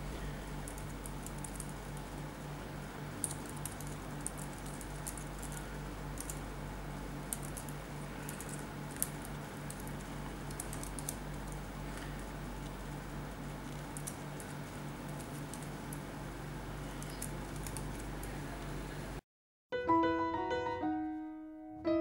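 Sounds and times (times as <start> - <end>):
steady background hum: 0.0 - 19.2
keyboard keys clicking: 3.2 - 6.4, 13.7 - 16.0, 17.0 - 18.4.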